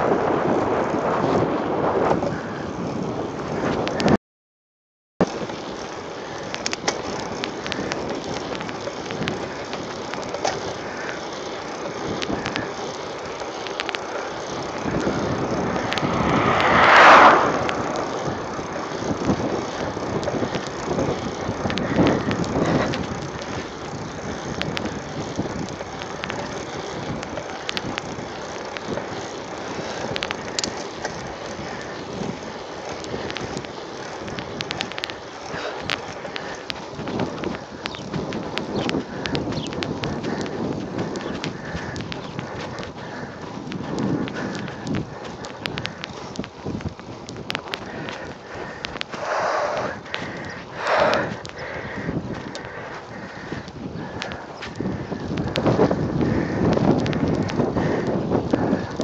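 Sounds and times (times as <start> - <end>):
bike clicks and rattles: 0.0 - 4.2, 5.2 - 59.0
tyre and wind noise: 0.0 - 4.2, 5.2 - 59.0
loud rushing: 15.3 - 19.1.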